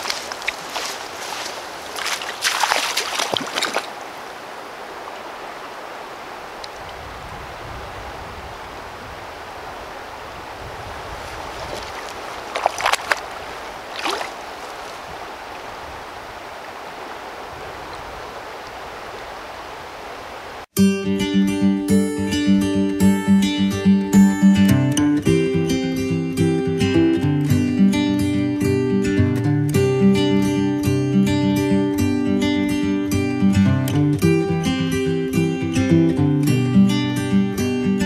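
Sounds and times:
water splashes: 0.0 - 7.1, 8.4 - 20.7
creek flowing: 0.0 - 20.7.

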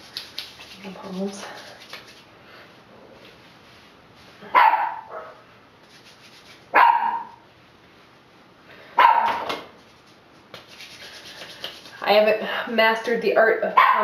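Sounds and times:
dog barking: 4.5 - 5.4, 6.7 - 7.4, 9.0 - 9.5, 13.8 - 14.0.

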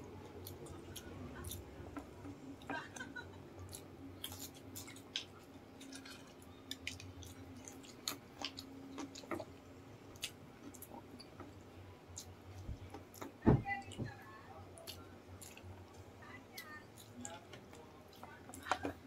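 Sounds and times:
people chewing: 0.0 - 13.4, 14.7 - 19.0
crispy food crunching: 2.8 - 13.3, 14.8 - 16.0.

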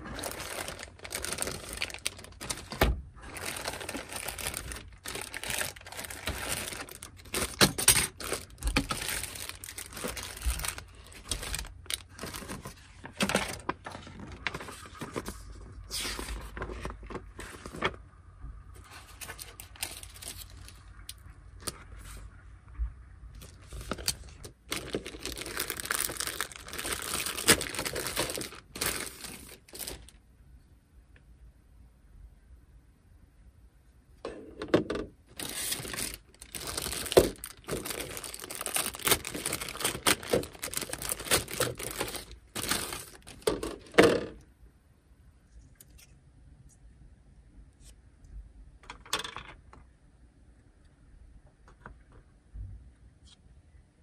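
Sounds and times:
paper sheets rustling: 0.0 - 18.0, 23.4 - 30.1, 35.4 - 43.6
plastic bags crinkling: 0.0 - 18.0, 18.8 - 21.8, 23.4 - 30.2, 35.3 - 44.2.

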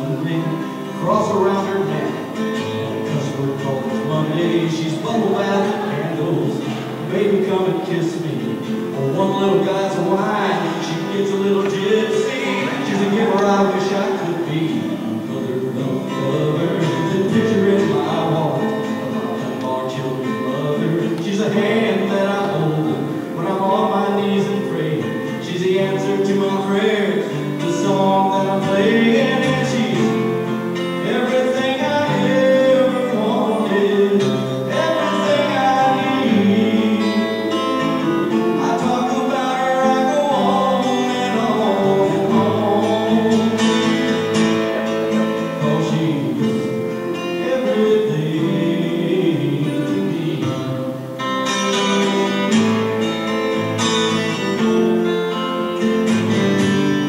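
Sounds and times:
amplified acoustic guitar: 0.0 - 57.0
man singing country song: 0.0 - 57.0.

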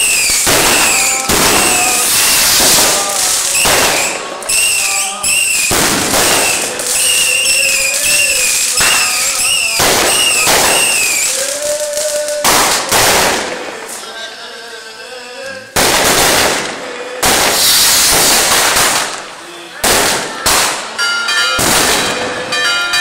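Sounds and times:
shrill wavering whistles: 0.0 - 2.5, 3.5 - 5.7, 6.3 - 11.4
fireworks banging and crackling: 0.0 - 14.2, 15.5 - 23.0.

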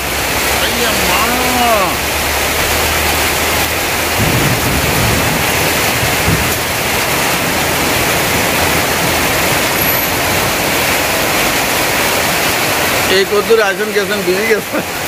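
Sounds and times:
heavy rain on plastic tarpaulins: 0.0 - 15.0
runoff pouring off roof edges: 0.0 - 15.0.

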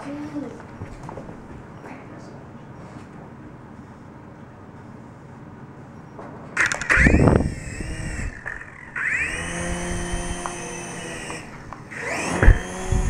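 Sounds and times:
loud clatter: 6.6 - 9.6
toy helicopter motors whining: 6.6 - 13.0.

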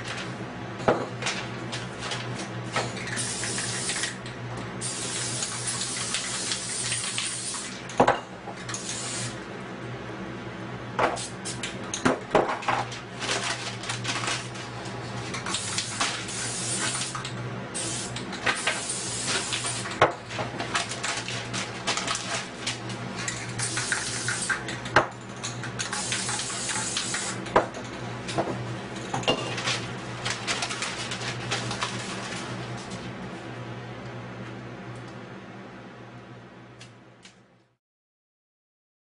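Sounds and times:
spray-paint can hissing: 3.2 - 4.2, 4.8 - 7.7, 8.8 - 9.4, 15.5 - 17.2, 17.8 - 20.0, 23.6 - 24.6, 25.9 - 27.4
cans and tools clattering on table: 29.1 - 29.7.

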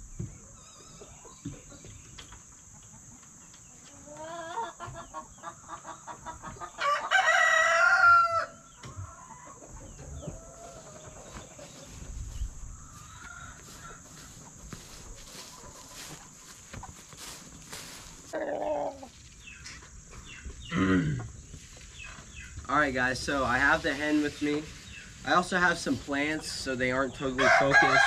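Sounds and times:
chicken clucking: 0.2 - 7.9, 8.6 - 22.8
chicken squawking: 18.3 - 19.1.

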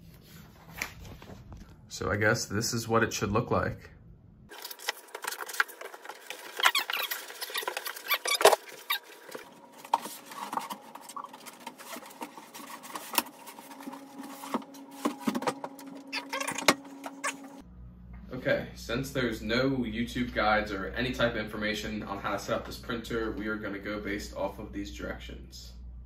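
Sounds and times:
cardboard scraping: 4.5 - 17.6
foam packing squeaking on metal: 6.5 - 9.4, 10.1 - 17.6.

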